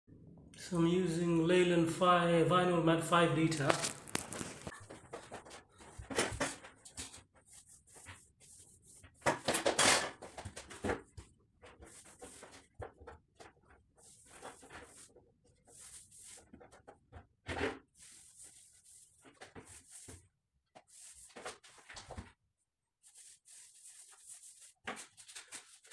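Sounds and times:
paintbrush bristles swishing on wall: 0:07.2 - 0:09.2, 0:13.9 - 0:16.9, 0:17.9 - 0:20.2, 0:20.8 - 0:22.2, 0:23.0 - 0:25.9.

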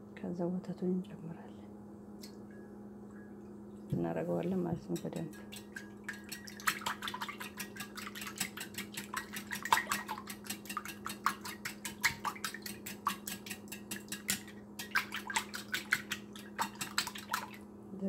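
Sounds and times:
steady low hum: 0:00.0 - 0:18.0
wire whisk clicking against bowl: 0:04.9 - 0:17.4.

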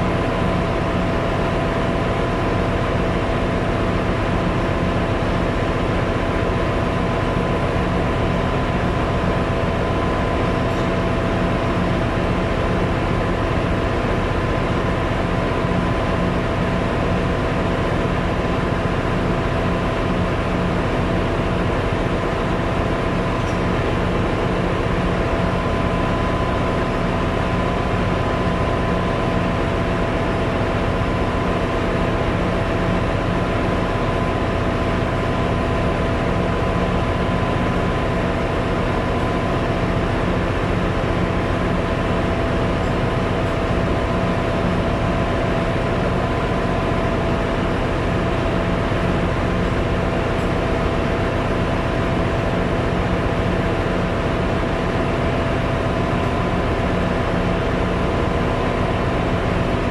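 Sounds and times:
low machinery hum: 0:00.0 - 0:59.9.

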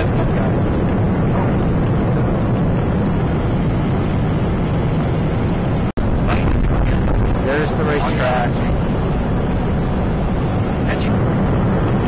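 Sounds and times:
airflow rushing: 0:00.0 - 0:12.0
jet engine drone: 0:00.0 - 0:12.0.

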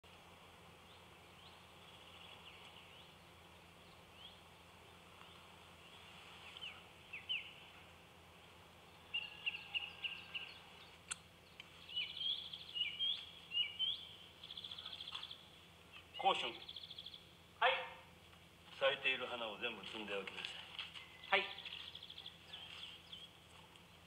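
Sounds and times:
small birds chirping: 0:00.1 - 0:24.0.

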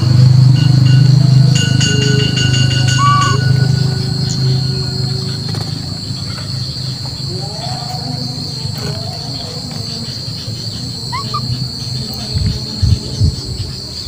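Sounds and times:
rising chirps: 0:00.0 - 0:08.3, 0:10.5 - 0:13.6
high-pitched insect drone: 0:00.0 - 0:14.0
low rumbling hum: 0:00.0 - 0:14.0
faint short calls: 0:02.8 - 0:03.9.

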